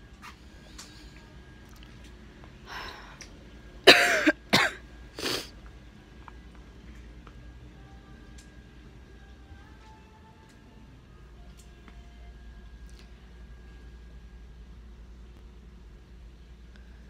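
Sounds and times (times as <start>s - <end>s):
person coughing: 3.8s - 5.5s.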